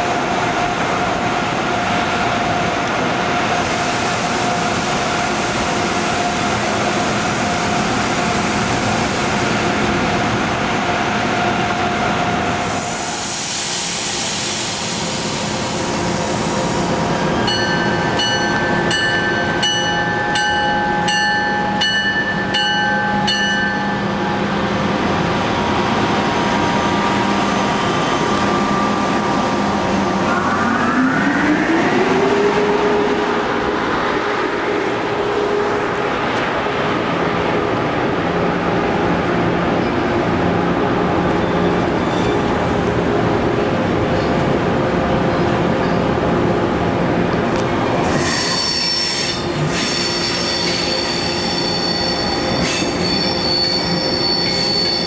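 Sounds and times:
electric train hum: 0.0s - 55.0s
train bell ringing: 17.4s - 25.0s, 49.8s - 55.0s
motor whine rising in pitch: 28.3s - 35.0s.

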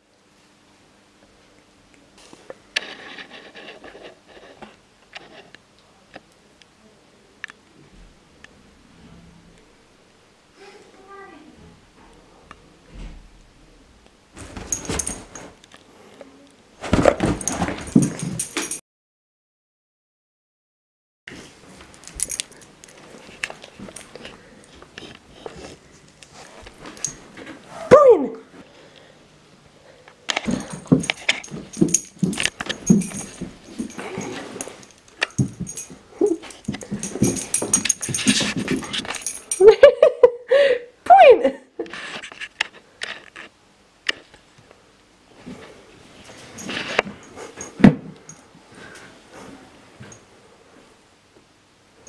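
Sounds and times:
metallic jingling: 14.6s - 15.5s, 17.3s - 18.8s, 30.5s - 39.7s
clicks and rustles: 30.3s - 39.7s, 41.8s - 44.4s
dog scrambling: 30.4s - 39.6s
dog whining: 36.2s - 36.5s.

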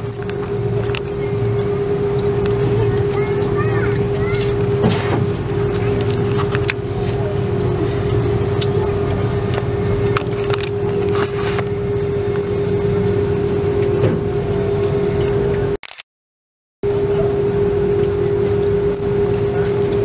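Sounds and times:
airliner cabin drone: 0.0s - 16.0s, 16.8s - 20.0s.

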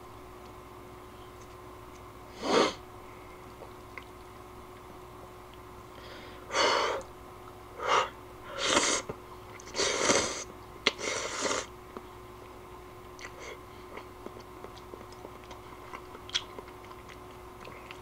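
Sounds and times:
person slurping noodles: 8.6s - 9.0s, 9.7s - 10.4s.

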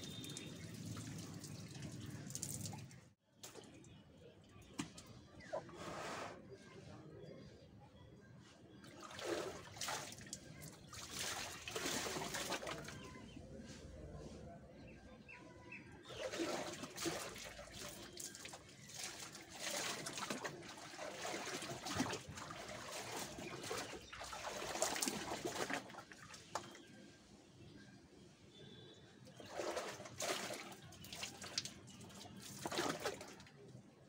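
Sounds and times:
water splashing in plastic tub: 0.0s - 4.0s, 8.8s - 13.2s, 16.0s - 27.0s, 29.2s - 33.8s.

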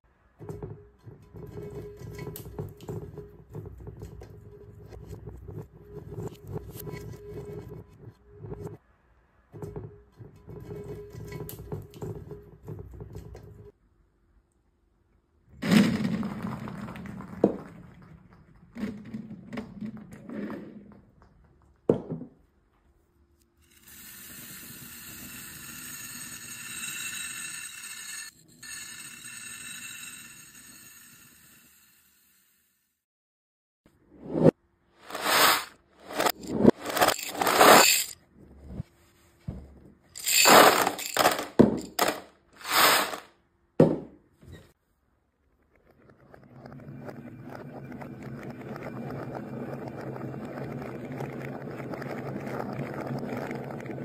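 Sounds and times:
beads clattering on glass plate: 35.0s - 38.2s, 40.2s - 43.3s
small beads pouring: 35.1s - 38.2s, 40.2s - 43.3s.

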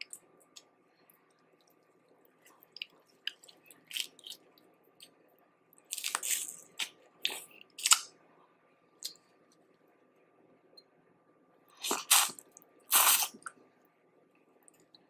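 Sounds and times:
wet squishing and chewing: 0.0s - 5.1s, 5.8s - 8.1s, 11.8s - 13.6s.

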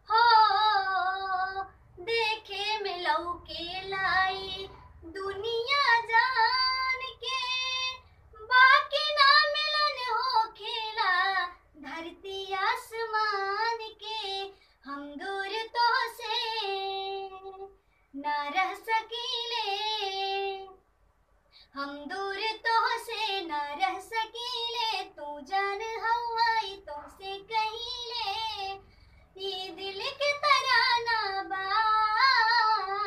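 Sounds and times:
girl singing unaccompanied: 0.0s - 20.8s, 21.6s - 33.0s
singer breathing: 14.5s - 14.8s, 17.8s - 18.2s, 21.4s - 21.8s, 28.8s - 29.4s.

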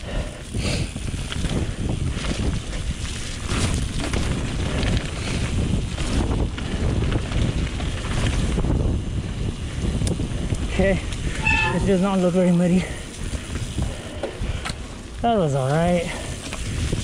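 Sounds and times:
bike rattling over bumps: 0.0s - 17.0s
bike tyre noise on dirt: 0.0s - 17.0s
wind over microphone: 0.0s - 17.0s.

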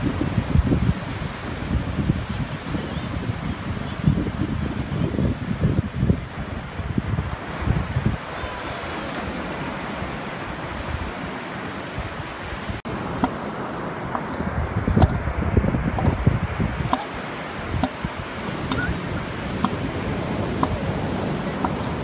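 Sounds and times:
surf washing onto beach: 0.0s - 22.0s
wind buffeting microphone: 0.0s - 22.0s.

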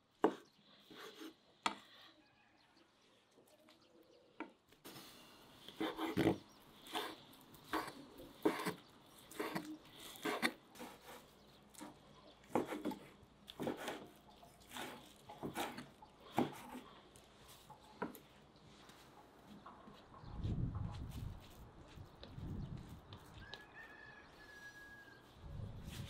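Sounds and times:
knife chopping on wooden board: 12.5s - 14.0s, 14.7s - 16.8s.

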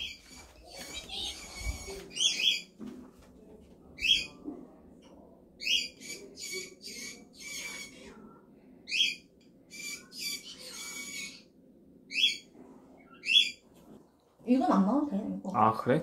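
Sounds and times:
parrot chirping and squawking: 0.0s - 2.7s, 5.6s - 8.1s, 8.9s - 11.5s, 12.1s - 13.6s.

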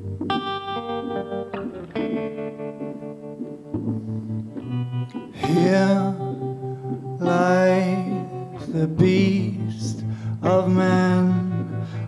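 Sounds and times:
electric guitar: 0.0s - 12.0s
man singing: 5.4s - 6.6s, 7.2s - 12.0s.

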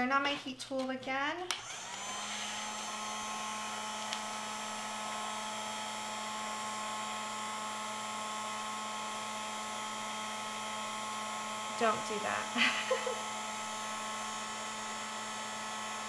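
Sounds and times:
heat tool switch: 1.5s - 2.4s, 4.0s - 4.4s
heat tool fan humming: 1.6s - 16.0s.

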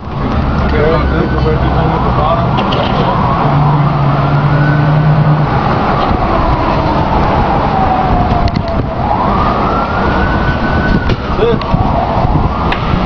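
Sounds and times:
street traffic noise: 0.0s - 13.0s
siren wailing: 0.1s - 13.0s.

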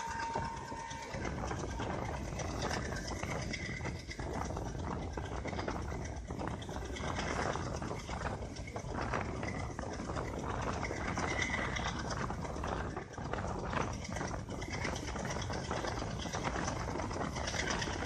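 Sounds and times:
train running at speed: 0.0s - 18.0s
wheels and fittings clattering: 0.0s - 18.0s.

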